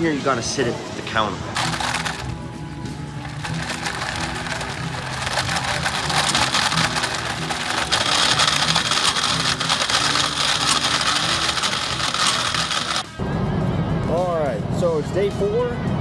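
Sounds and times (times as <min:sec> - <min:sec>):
blender churning fruit: 0:01.6 - 0:02.3, 0:03.2 - 0:13.1.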